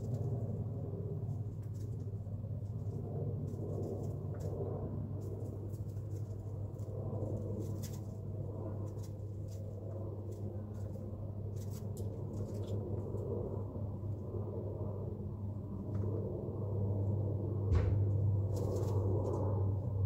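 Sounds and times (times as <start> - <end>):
steady low hum: 0.0 - 20.0
chickens pecking and scratching: 1.3 - 13.2.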